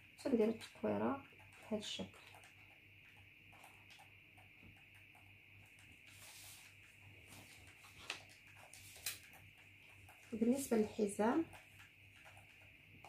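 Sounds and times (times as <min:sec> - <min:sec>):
faint steady hum: 0:00.0 - 0:13.0
paper brushing on tabletop: 0:06.1 - 0:09.2.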